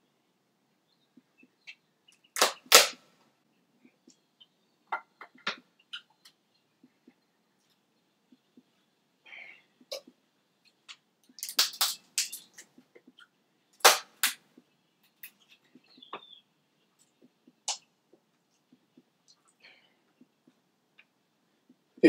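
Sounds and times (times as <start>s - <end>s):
crab shell cracking: 11.3s - 12.5s.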